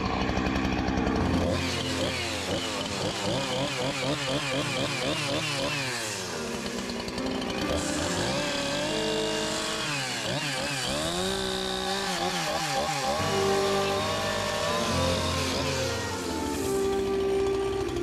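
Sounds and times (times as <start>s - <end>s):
chainsaw cutting into log: 0.0s - 18.0s.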